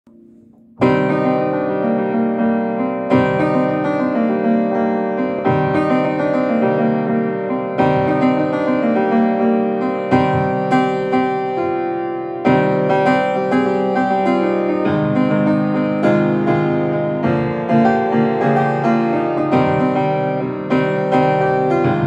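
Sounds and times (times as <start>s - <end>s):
upright piano playing chords: 0.1s - 22.0s.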